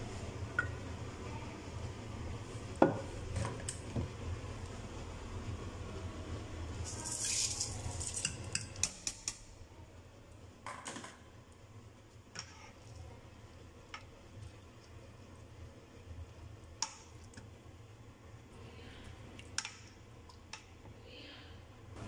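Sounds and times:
spoon stirring: 6.8 - 9.2.

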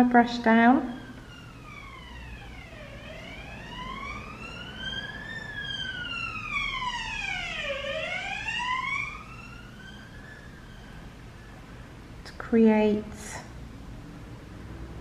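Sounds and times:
emergency vehicle siren wailing: 0.5 - 12.1.

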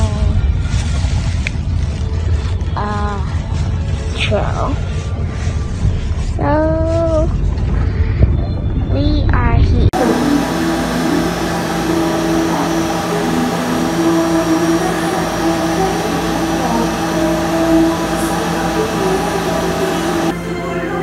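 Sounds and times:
dental suction hissing and humming: 10.0 - 20.4.

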